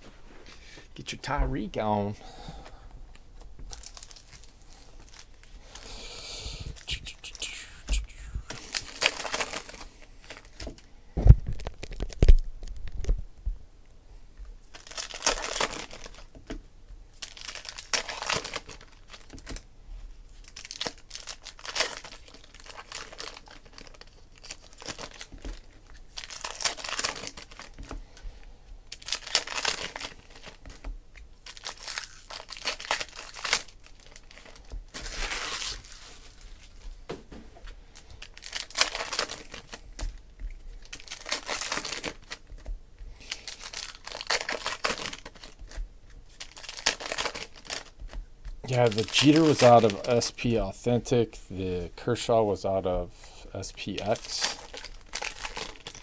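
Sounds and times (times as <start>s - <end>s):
foil packs tearing and crinkling: 8.5s - 10.8s, 11.5s - 12.8s, 14.7s - 16.4s, 17.1s - 19.6s, 20.3s - 28.0s, 28.9s - 30.8s, 31.4s - 36.8s, 38.0s - 50.8s, 53.6s - 56.0s.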